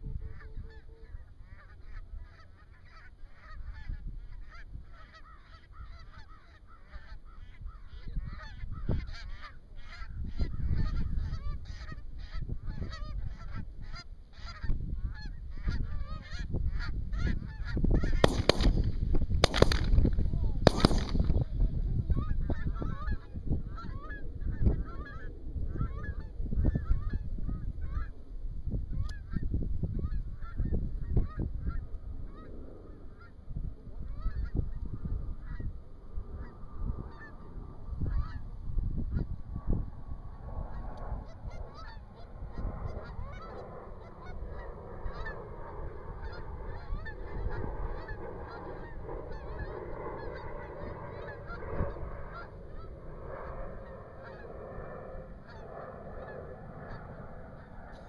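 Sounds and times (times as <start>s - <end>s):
wind rumble on microphone: 0.0s - 58.0s
geese honking: 0.3s - 20.0s, 20.7s - 21.4s, 36.4s - 38.5s, 40.7s - 58.0s.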